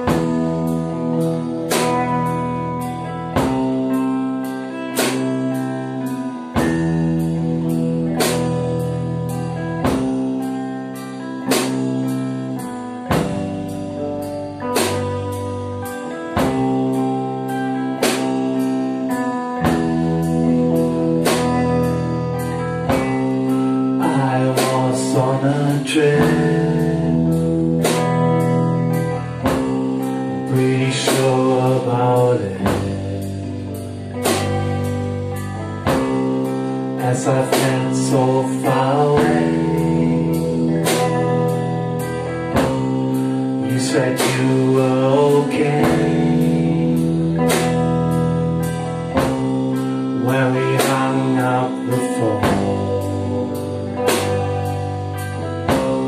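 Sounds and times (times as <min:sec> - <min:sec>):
drum kit beat: 0:00.0 - 0:56.0
electric bass: 0:00.0 - 0:56.0
electric guitar: 0:00.0 - 0:56.0
person singing: 0:15.8 - 0:56.0.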